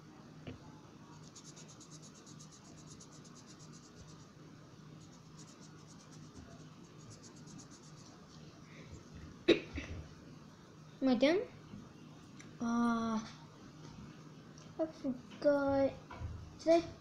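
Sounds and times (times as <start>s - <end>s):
colouring strokes scratching on paper: 1.2s - 8.4s.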